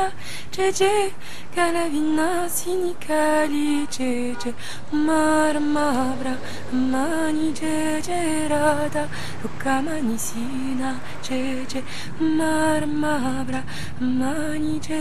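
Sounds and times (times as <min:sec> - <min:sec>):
woman singing slow melody: 0:00.0 - 0:15.0.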